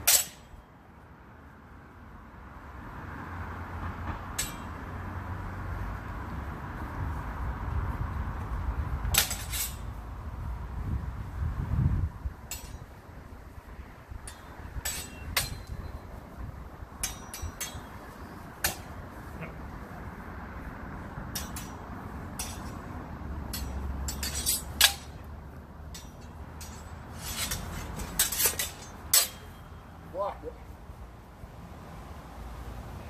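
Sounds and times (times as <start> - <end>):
steel swords clashing: 0.0 - 0.6, 4.4 - 5.0, 9.1 - 10.0, 12.5 - 13.0, 14.2 - 16.1, 17.0 - 19.6, 21.3 - 30.0.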